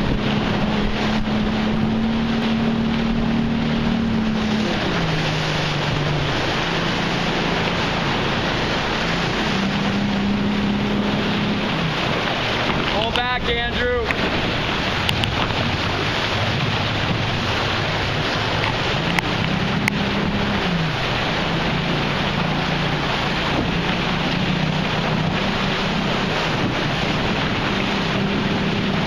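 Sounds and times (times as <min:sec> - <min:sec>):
low engine hum: 0:00.0 - 0:29.0
water rushing past boat: 0:00.0 - 0:29.0
wind buffeting microphone: 0:00.0 - 0:29.0.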